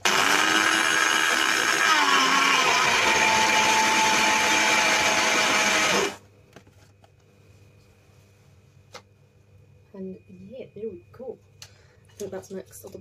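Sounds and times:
electric blender whining: 0:00.0 - 0:06.2.

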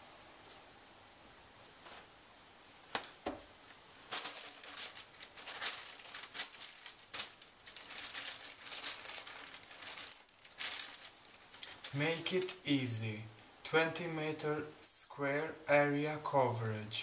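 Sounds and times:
plastic packaging crinkling: 0:04.0 - 0:12.7.

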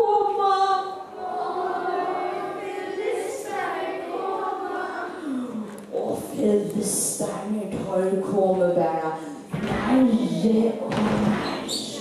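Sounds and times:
children's choir singing: 0:00.0 - 0:06.2, 0:09.5 - 0:12.0.

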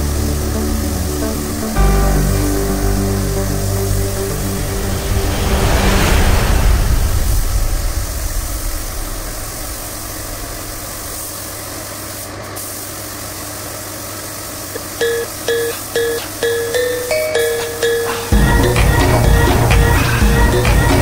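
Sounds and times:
plucked music notes: 0:00.0 - 0:04.9, 0:15.0 - 0:21.0
low engine-like rumble: 0:00.0 - 0:12.6.

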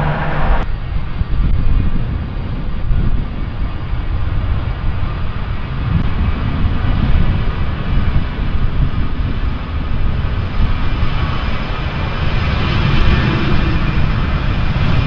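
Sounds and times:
high-pitched engine tones: 0:00.0 - 0:00.7
airliner engine rumble: 0:00.0 - 0:15.0.

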